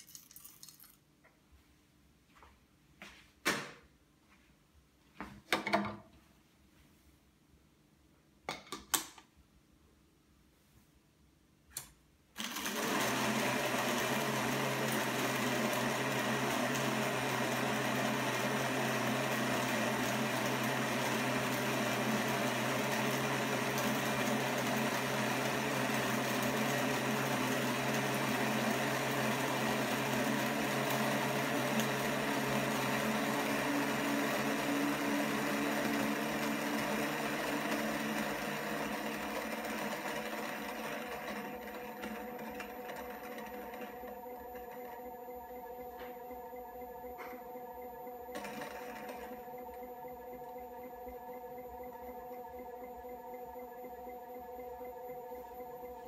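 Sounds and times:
coffee grinder motor humming: 12.4 - 56.0.

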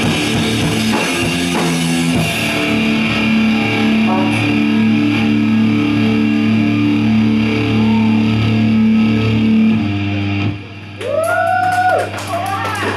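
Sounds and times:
rock band guitars and bass: 0.0 - 12.9
audience cheering: 2.4 - 9.5, 10.9 - 12.9
scattered clapping: 11.0 - 12.9.

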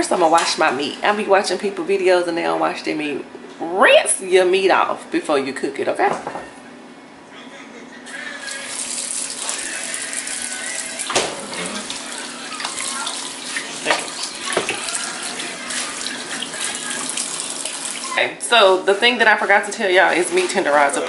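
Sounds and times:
faucet running into metal sink: 8.4 - 18.2
water splashes: 10.9 - 18.2.

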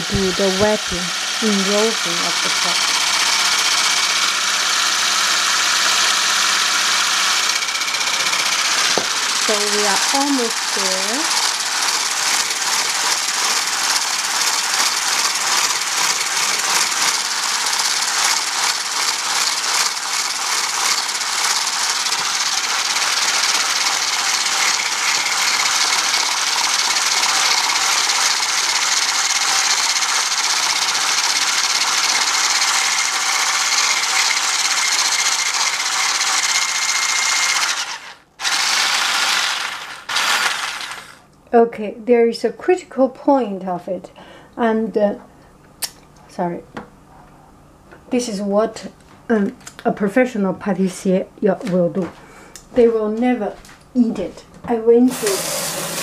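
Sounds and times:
electric hand blender whipping cream: 0.0 - 41.3, 55.1 - 56.0.

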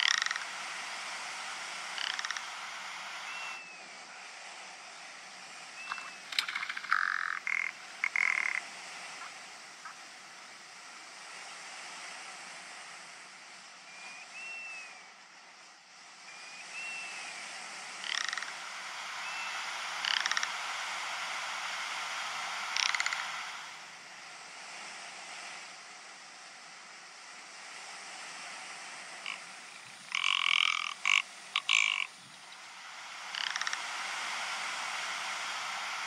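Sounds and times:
bird rattling croaks: 0.0 - 0.6, 1.8 - 3.2, 5.9 - 8.7, 18.0 - 18.7, 19.8 - 20.7, 22.5 - 23.6, 29.2 - 34.1
steady background hiss: 0.0 - 36.0.

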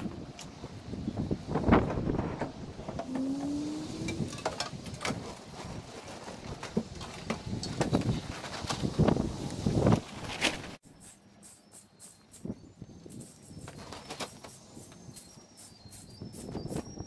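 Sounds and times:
wind on microphone: 0.0 - 10.4, 14.7 - 17.0.

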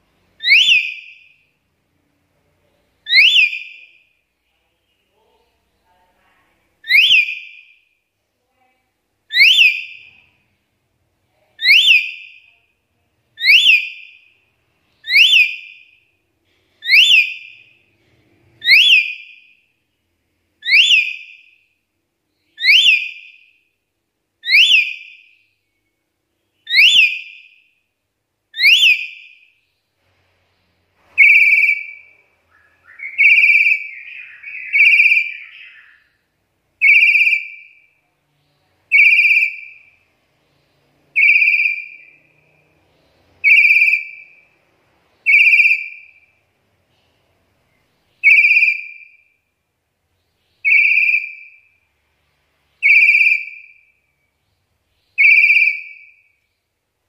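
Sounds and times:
parrot sharp whistles: 0.4 - 1.2, 3.1 - 3.8, 6.8 - 7.6, 9.3 - 10.1, 11.6 - 12.3, 13.4 - 14.1, 15.0 - 15.8, 16.8 - 17.7, 18.6 - 19.4, 20.6 - 21.3, 22.6 - 23.4, 24.4 - 25.2, 26.7 - 27.5, 28.6 - 29.4, 31.1 - 36.2, 43.4 - 44.4, 45.3 - 46.2, 48.2 - 49.4, 50.6 - 51.6.

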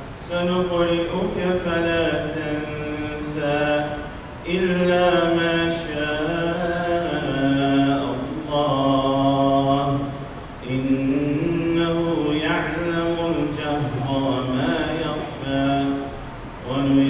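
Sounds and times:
man chanting melodically: 0.2 - 17.0.

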